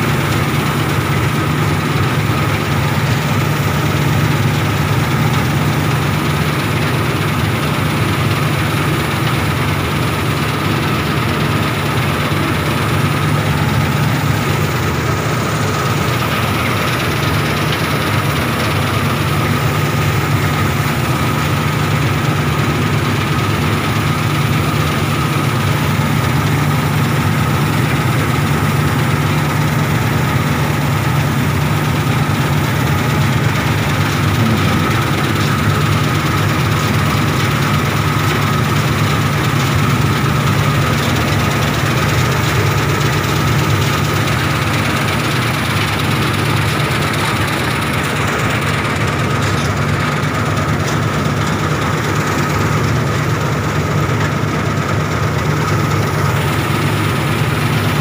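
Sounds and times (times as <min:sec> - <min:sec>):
combine harvester engine drone: 0:00.0 - 0:58.0
constant high whine: 0:00.0 - 0:58.0.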